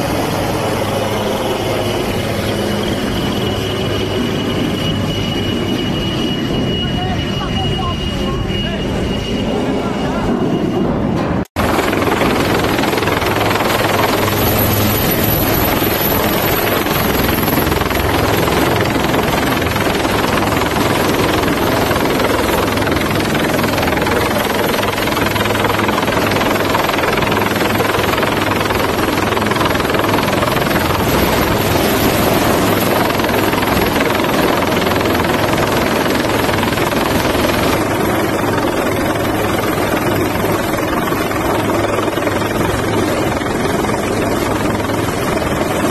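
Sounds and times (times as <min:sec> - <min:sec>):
helicopter hovering: 0:00.0 - 0:45.9.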